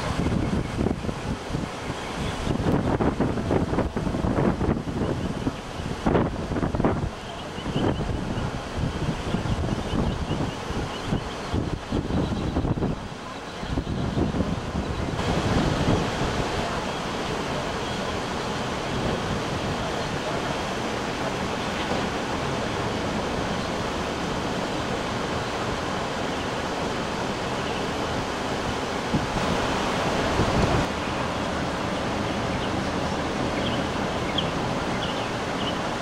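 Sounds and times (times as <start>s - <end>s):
wind rushing: 0.0s - 7.2s, 13.8s - 16.8s, 22.1s - 36.0s.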